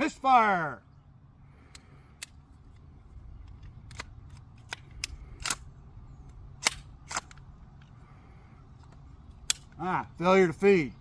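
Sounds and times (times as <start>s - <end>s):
pistol action metallic clicks: 1.6s - 7.9s, 8.9s - 9.8s.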